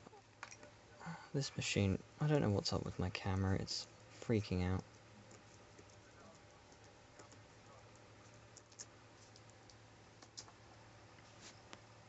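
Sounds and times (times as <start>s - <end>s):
low steady hum: 0.0s - 12.0s
soft keyboard clicks: 4.8s - 10.6s.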